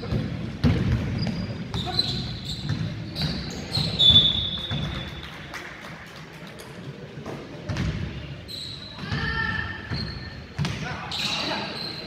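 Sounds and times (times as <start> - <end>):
sneakers squeaking on floor: 0.0 - 5.2, 7.7 - 12.0.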